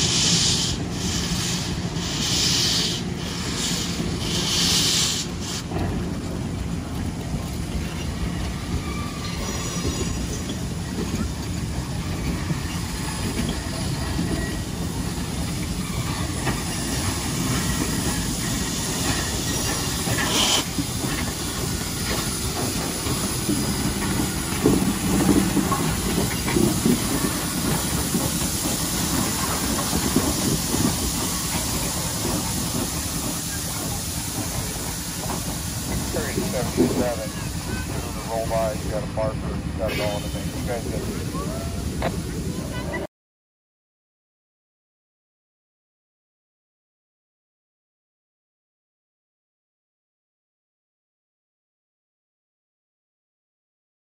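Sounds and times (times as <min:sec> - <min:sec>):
steam hissing: 0:00.0 - 0:05.7, 0:11.6 - 0:42.7
train wheels rumbling on rail: 0:00.0 - 0:43.1.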